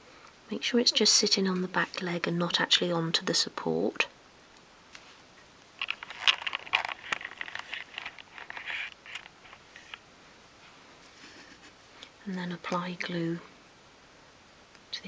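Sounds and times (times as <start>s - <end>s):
hands rustling craft pieces: 5.8s - 10.0s.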